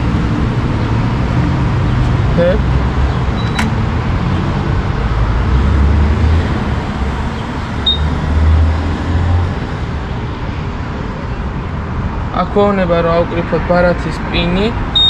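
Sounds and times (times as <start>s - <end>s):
road traffic rumble: 0.0s - 15.0s
fuel pump beep: 3.4s - 3.7s, 7.8s - 8.2s.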